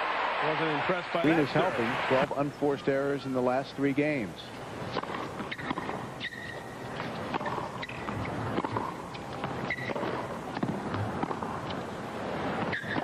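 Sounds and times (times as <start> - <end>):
tennis ball hit by rackets: 4.9 - 6.4, 7.0 - 11.6.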